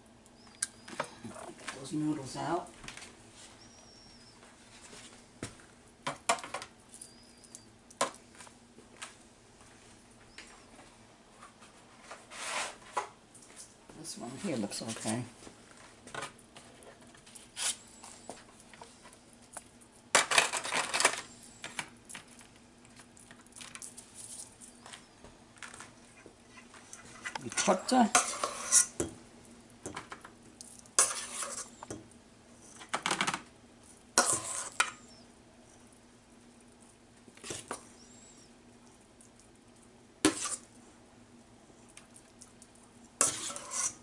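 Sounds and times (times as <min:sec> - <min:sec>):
faint steady hum: 0:00.0 - 0:44.0
aluminium foil pan crinkling: 0:15.9 - 0:29.0.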